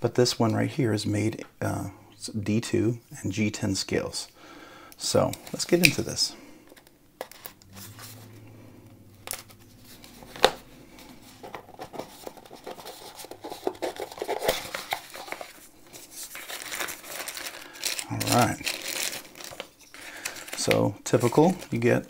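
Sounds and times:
cardboard scraping and rustling: 9.2 - 19.7.

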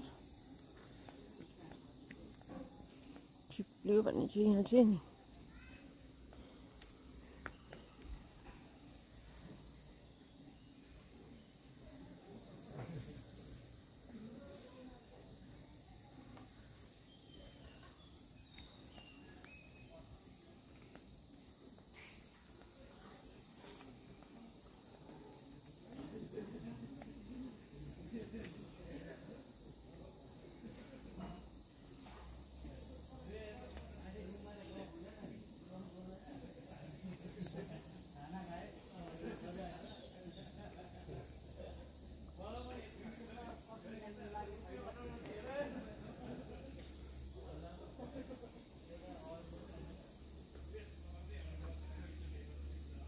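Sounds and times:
insects droning: 0.0 - 53.0.

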